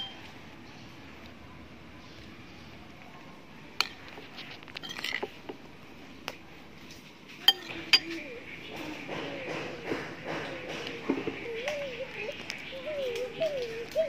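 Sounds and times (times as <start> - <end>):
spoon scraping ceramic bowl: 4.2 - 5.4.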